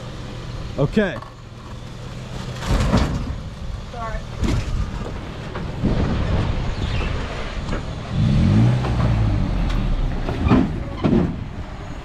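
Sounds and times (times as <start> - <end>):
truck engine revving: 4.4 - 12.0.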